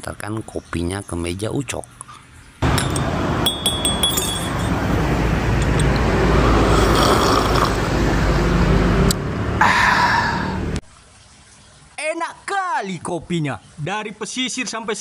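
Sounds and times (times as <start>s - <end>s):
rumble of passing vehicles: 2.2s - 10.8s
cup clinking on saucer: 2.6s - 4.7s.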